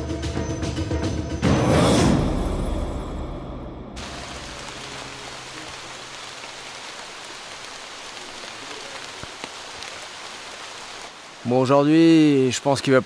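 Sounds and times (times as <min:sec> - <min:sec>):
background music: 0:00.0 - 0:04.0
rain falling on foliage: 0:04.0 - 0:13.0.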